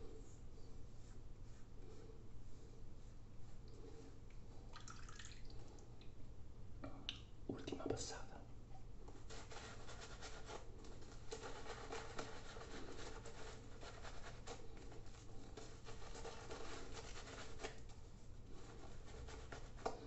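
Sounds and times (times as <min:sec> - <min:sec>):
shaving brush swirling lather: 0:09.2 - 0:20.0.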